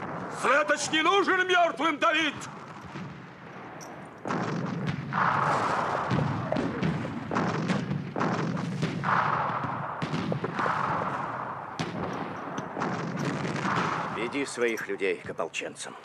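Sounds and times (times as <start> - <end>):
gunshots: 0.0 - 1.3, 2.3 - 14.6
explosion booms: 4.3 - 14.2.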